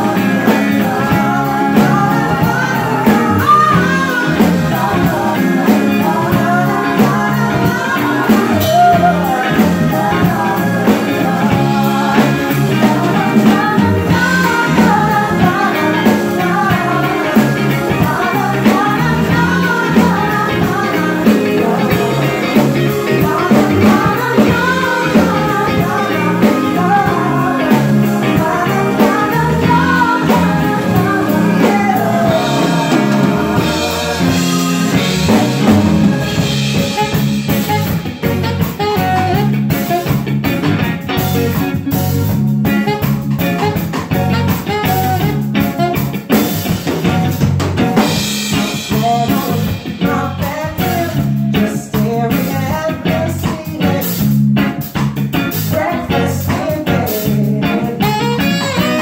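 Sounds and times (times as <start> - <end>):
woman singing into microphone: 0.0 - 36.4, 48.8 - 54.2, 55.7 - 59.0
bass guitar: 0.0 - 59.0
drum kit beat: 0.0 - 59.0
live soul band playing: 0.0 - 59.0.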